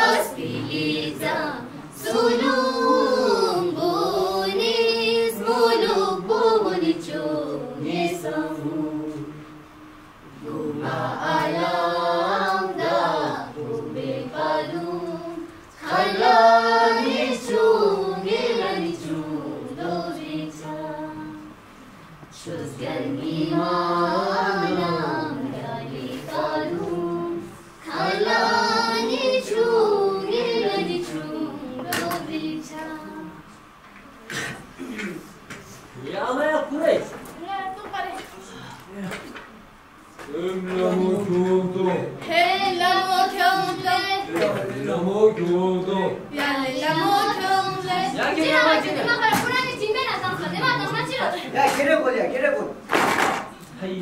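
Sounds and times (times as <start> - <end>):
children singing: 0.0 - 9.4, 10.4 - 21.6, 22.4 - 33.5, 42.2 - 44.7, 46.3 - 51.0.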